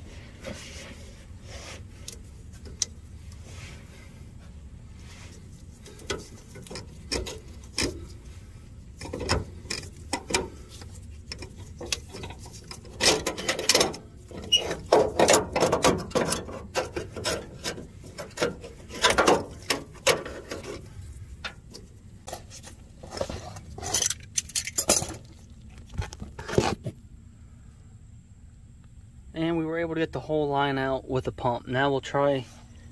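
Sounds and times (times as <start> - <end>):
metal parts scraping and knocking: 5.3 - 8.3, 8.9 - 25.4.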